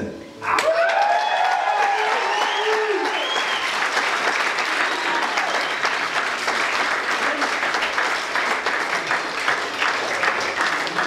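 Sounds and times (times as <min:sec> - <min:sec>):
crowd clapping: 0:00.6 - 0:11.0.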